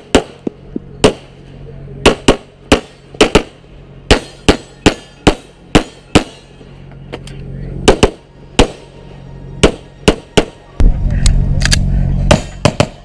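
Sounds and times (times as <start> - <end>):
pistol gunshots: 0.0 - 1.4, 2.0 - 6.6, 7.8 - 8.9, 9.6 - 10.6, 11.8 - 13.0.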